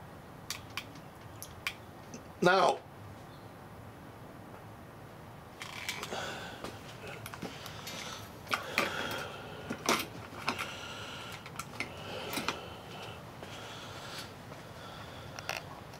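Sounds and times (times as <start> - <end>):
clicks and knocks of handling: 7.1 - 10.7, 11.3 - 12.6.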